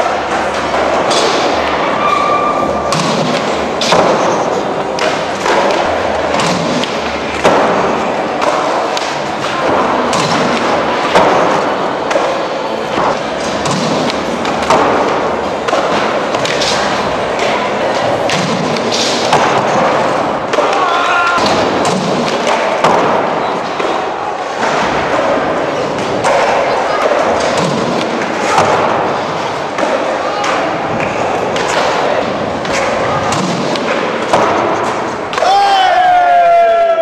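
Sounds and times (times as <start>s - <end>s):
skateboards landing with clacks: 0.0s - 1.8s, 2.9s - 36.4s.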